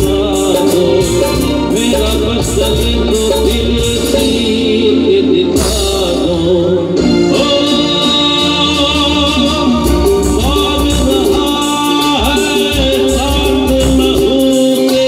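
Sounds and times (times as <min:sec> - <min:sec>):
live band playing through speakers: 0:00.0 - 0:15.0
man singing into a microphone: 0:00.0 - 0:15.0.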